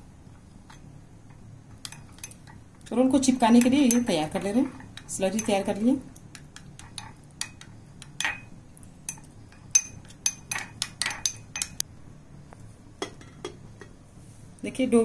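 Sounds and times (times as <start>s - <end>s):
metal spoon clinking glass bowl: 3.5s - 11.8s.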